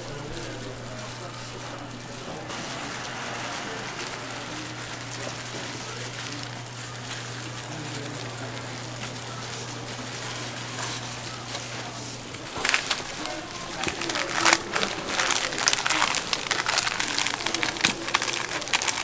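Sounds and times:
constant low hum: 0:00.0 - 0:19.0
steady hissing noise: 0:00.0 - 0:19.0.

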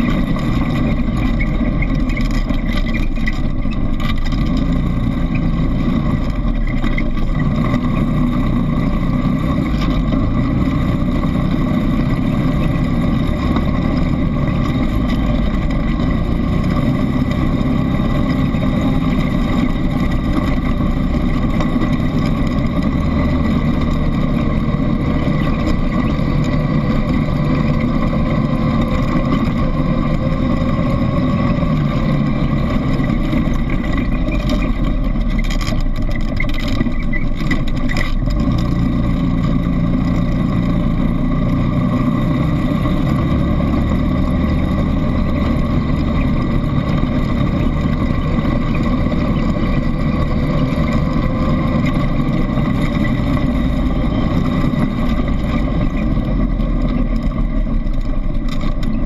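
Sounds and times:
atv engine running: 0:00.0 - 0:59.0
knocks and rattles: 0:13.2 - 0:40.7.

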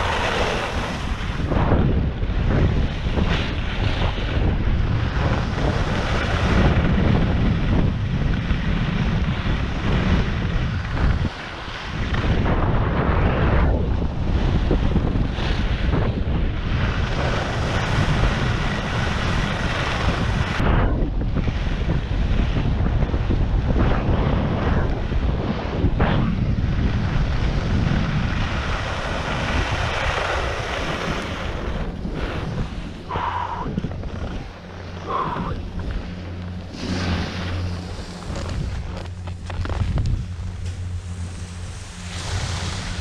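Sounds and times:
skis scraping packed snow: 0:00.0 - 0:01.4, 0:36.6 - 0:43.0
wind buffeting microphone: 0:00.0 - 0:43.0.

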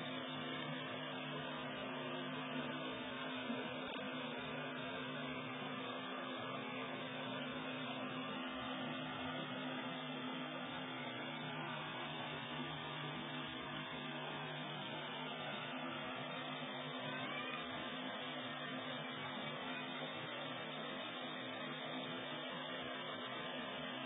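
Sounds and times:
constant hiss: 0:00.0 - 0:24.0
low tonal hum: 0:00.0 - 0:24.0.

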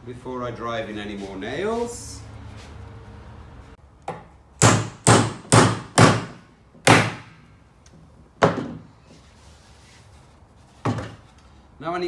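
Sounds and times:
hammer hitting nail: 0:04.1 - 0:07.4.

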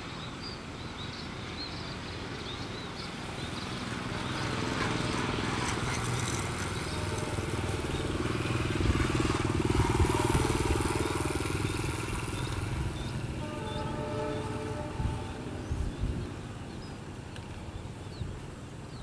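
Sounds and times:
turboprop engines throbbing drone: 0:06.0 - 0:16.9.

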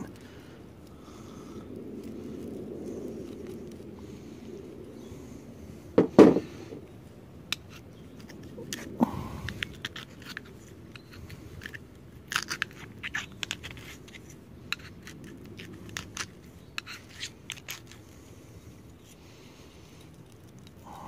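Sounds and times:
loud thump: 0:06.0 - 0:06.5.

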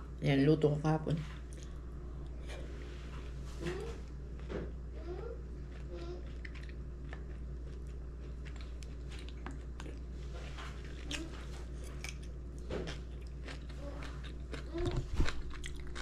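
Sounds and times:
low hum: 0:00.0 - 0:16.0
person chewing: 0:05.5 - 0:16.0.

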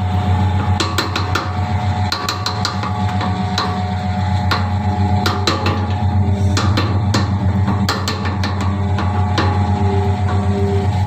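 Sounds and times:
feed mixer humming: 0:00.0 - 0:11.0
mixer paddles knocking and clattering: 0:00.5 - 0:11.0.

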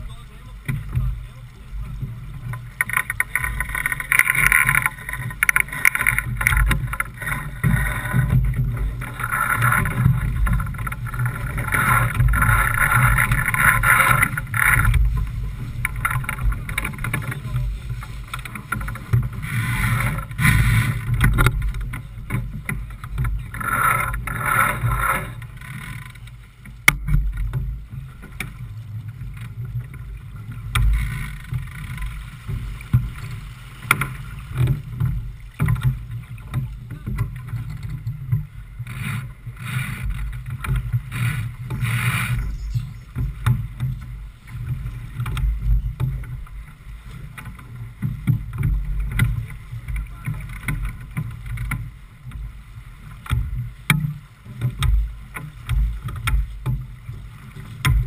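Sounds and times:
wind buffeting microphone: 0:00.0 - 0:25.5
water rushing along boat hull: 0:00.0 - 0:58.0.

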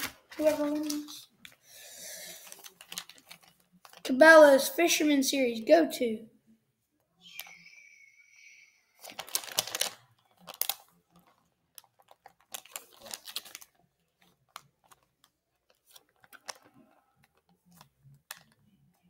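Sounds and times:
plastic packaging crinkling: 0:00.0 - 0:01.6, 0:02.3 - 0:04.1, 0:09.0 - 0:18.7.

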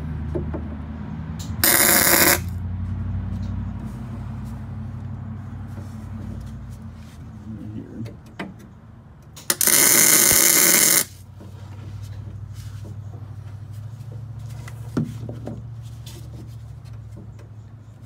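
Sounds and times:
welding arc burst: 0:01.6 - 0:02.6, 0:09.5 - 0:11.1.

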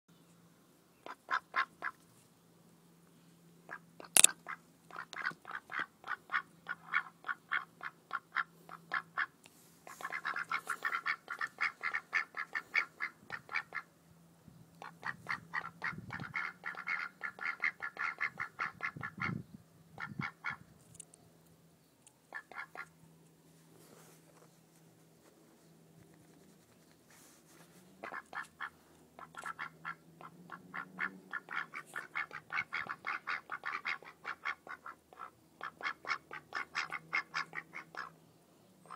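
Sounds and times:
ducks quacking: 0:01.0 - 0:02.0, 0:03.7 - 0:13.9, 0:14.8 - 0:19.4, 0:20.0 - 0:20.6, 0:22.3 - 0:22.9, 0:28.0 - 0:38.2.

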